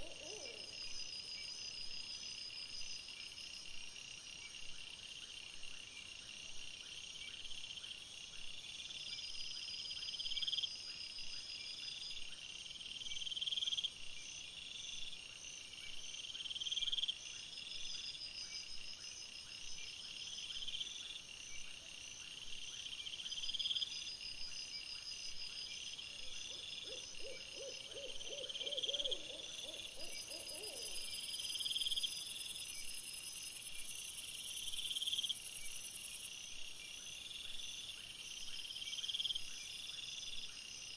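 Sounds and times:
loud pulsing insect call: 0:00.0 - 0:04.5, 0:09.2 - 0:40.9
crickets trilling: 0:26.6 - 0:36.4.

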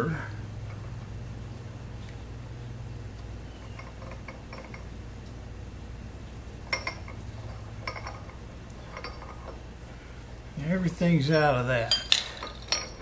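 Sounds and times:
steady low hum: 0:00.0 - 0:13.0
steel parts clinking: 0:03.6 - 0:04.9, 0:06.6 - 0:09.6, 0:11.2 - 0:13.0.

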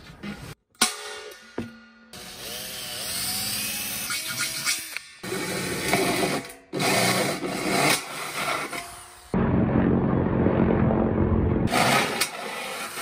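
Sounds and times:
hole saw grinding through steel: 0:02.1 - 0:09.3, 0:11.7 - 0:13.0.

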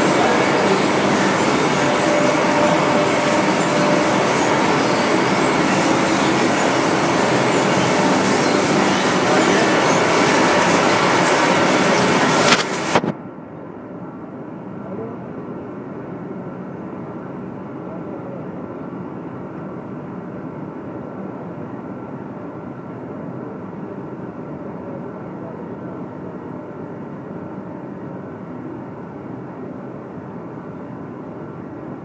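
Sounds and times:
roasting machine running: 0:00.0 - 0:13.1.

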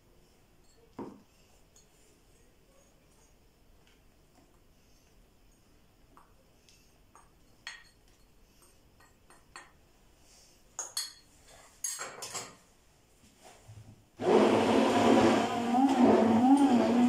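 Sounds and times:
spoon clinking on glass dish: 0:07.2 - 0:09.8, 0:10.8 - 0:12.5
stick blender running: 0:14.2 - 0:17.0.

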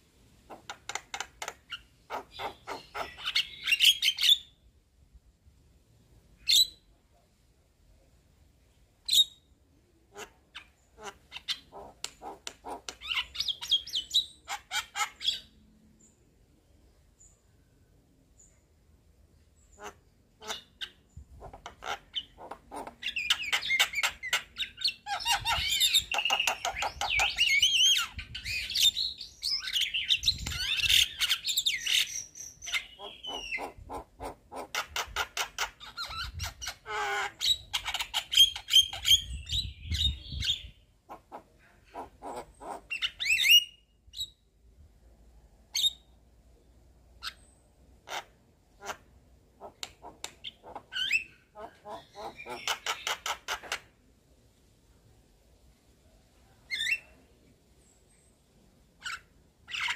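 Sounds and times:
bird chattering song: 0:00.5 - 0:04.6, 0:10.1 - 0:16.2, 0:19.6 - 0:44.5, 0:47.2 - 0:53.9, 0:59.0 - 0:59.9.

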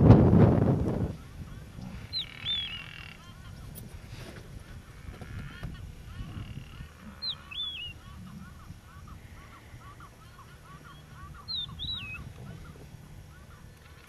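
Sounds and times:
rapid bird calls: 0:01.5 - 0:03.6, 0:04.6 - 0:14.0
swooping whistled bird calls: 0:02.0 - 0:03.3, 0:06.3 - 0:13.5.

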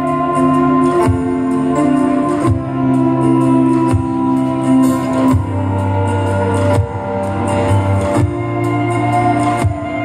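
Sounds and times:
live pop band instrumental: 0:00.0 - 0:10.0.

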